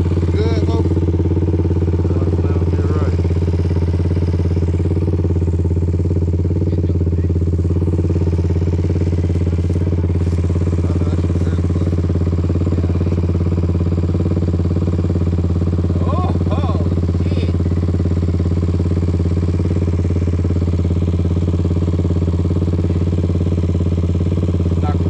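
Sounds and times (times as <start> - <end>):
small engine idling: 0.0 - 25.0.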